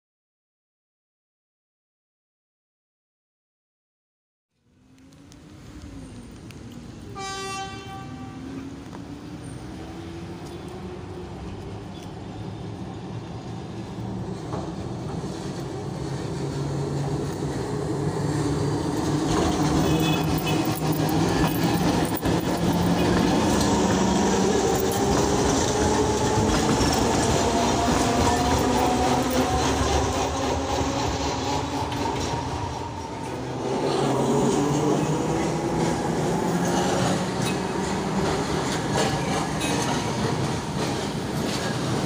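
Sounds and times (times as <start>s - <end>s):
tram wheels rumbling on rails: 4.7s - 42.0s
tram horn blast: 7.0s - 8.8s, 19.2s - 36.4s.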